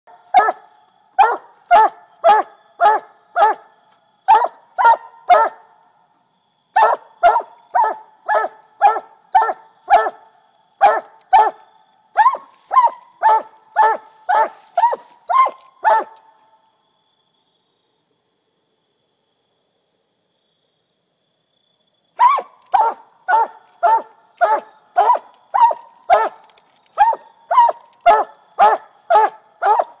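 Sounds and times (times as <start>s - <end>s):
dog barking: 0.3s - 3.7s, 4.3s - 5.7s, 6.8s - 10.2s, 10.8s - 11.6s, 12.2s - 16.2s, 22.2s - 26.4s, 27.0s - 30.0s.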